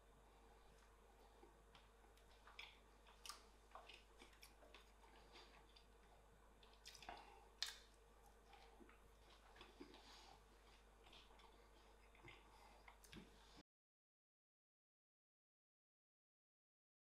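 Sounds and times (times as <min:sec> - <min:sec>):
soft wet squishing: 0:00.3 - 0:13.6.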